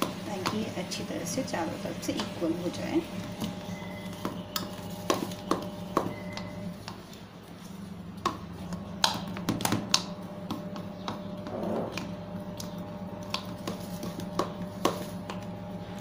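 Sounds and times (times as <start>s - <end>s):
low hum: 10.2s - 13.3s.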